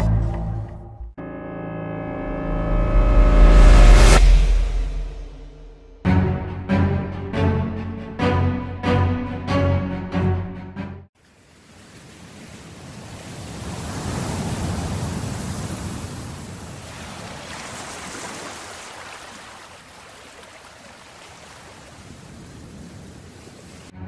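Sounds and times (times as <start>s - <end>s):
waves breaking and washing: 11.1s - 24.0s.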